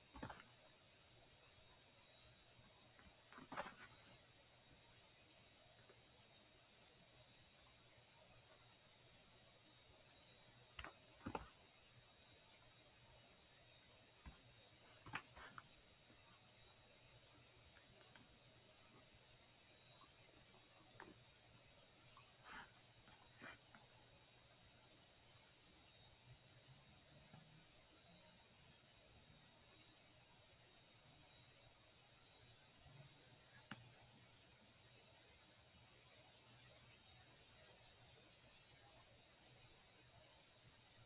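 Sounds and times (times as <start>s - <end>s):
computer mouse clicks: 0.1s - 0.6s, 1.3s - 1.6s, 2.5s - 4.0s, 5.3s - 6.0s, 7.6s - 7.8s, 8.5s - 8.8s, 10.0s - 11.6s, 12.5s - 12.8s, 13.8s - 14.4s, 15.0s - 15.9s, 16.6s - 21.2s, 22.0s - 23.9s, 25.3s - 25.6s, 26.6s - 27.5s, 29.6s - 30.0s, 32.8s - 33.9s, 38.7s - 39.2s.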